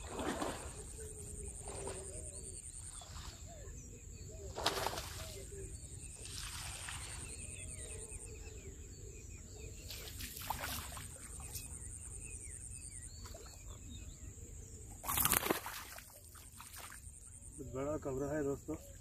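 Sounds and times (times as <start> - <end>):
small birds chirping: 0.6 - 19.0
fish splashing at water surface: 15.0 - 17.0.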